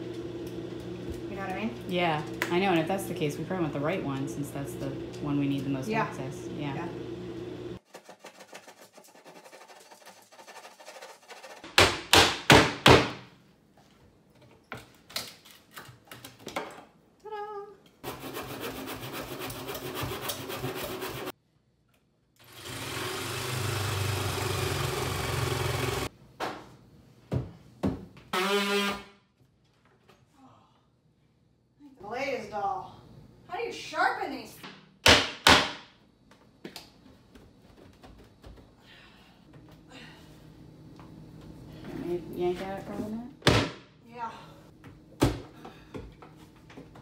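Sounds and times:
power saw running: 22.4s - 26.1s.

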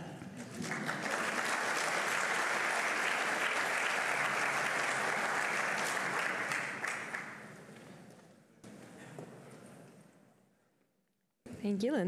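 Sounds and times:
audience applauding: 0.4s - 7.9s.

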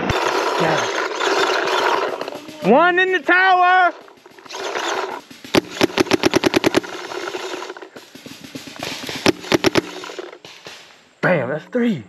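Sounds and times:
paintball marker firing: 4.0s - 10.9s.

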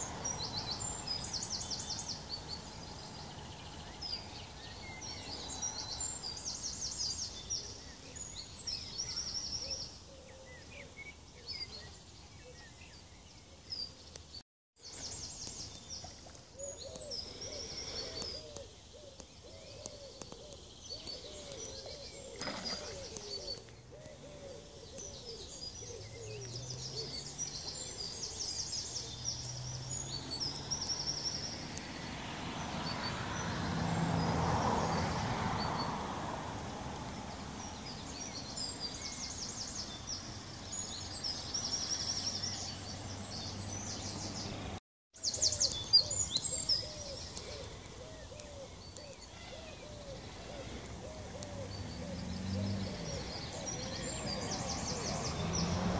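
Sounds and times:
birds chirping and trilling: 0.0s - 55.9s
rapid lower bird calls: 14.8s - 31.6s, 45.2s - 55.7s.

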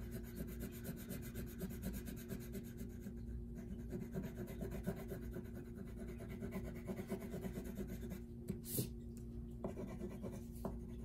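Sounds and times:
wax crayon scratching on paper: 3.8s - 8.2s.

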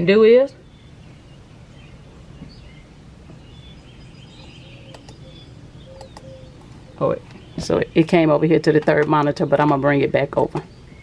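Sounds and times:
faint high chirps: 3.4s - 7.6s
computer mouse clicks: 4.9s - 5.2s, 6.0s - 6.3s.

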